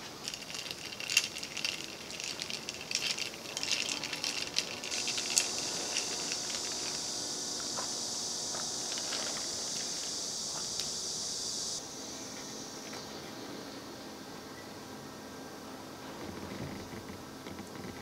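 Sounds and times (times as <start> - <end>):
high hiss: 0.0 - 14.4
ice cubes clinking in a glass: 0.2 - 7.0.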